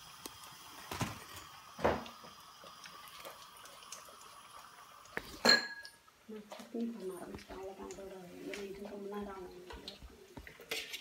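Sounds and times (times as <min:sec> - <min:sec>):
food deep-frying in hot oil: 0:00.0 - 0:08.3.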